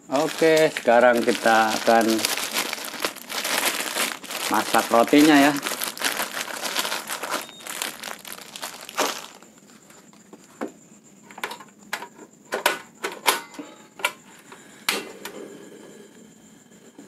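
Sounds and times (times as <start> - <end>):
plastic bag crinkling: 0.0 - 10.1
sharp crackles: 0.1 - 9.5.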